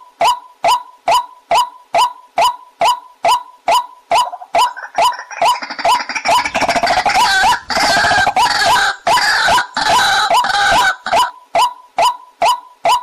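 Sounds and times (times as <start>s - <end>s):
waterhens calling: 2.4s - 11.3s.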